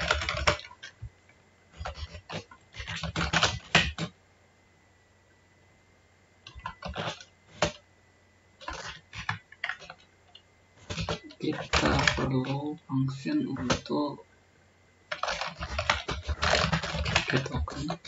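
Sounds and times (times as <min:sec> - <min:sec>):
typing on computer keyboard: 0:00.0 - 0:01.1, 0:01.8 - 0:04.1, 0:06.4 - 0:07.8, 0:08.6 - 0:10.1, 0:10.8 - 0:12.6, 0:15.1 - 0:18.0.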